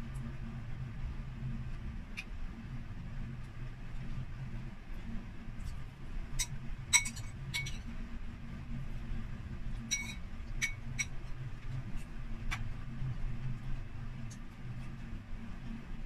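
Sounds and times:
steady low hum: 0.0 - 16.0
metal spoon clinking ceramic bowl: 6.4 - 7.9, 9.9 - 11.2.

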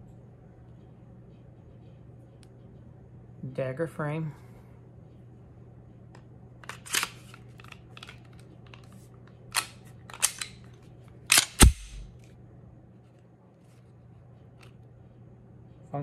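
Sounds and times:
pistol slide clicks and clacks: 6.6 - 8.9, 9.5 - 12.1.

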